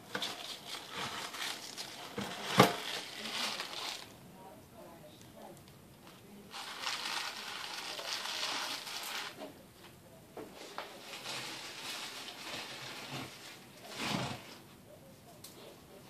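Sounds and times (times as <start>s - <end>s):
electric juicer grinding greens: 0.0s - 4.1s, 6.5s - 9.4s.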